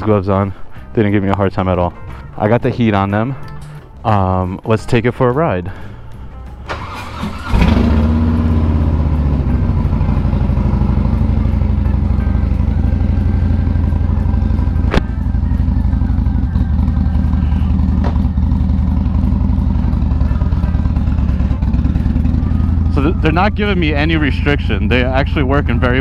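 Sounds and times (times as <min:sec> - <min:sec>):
motorcycle engine idling: 0:06.0 - 0:26.0.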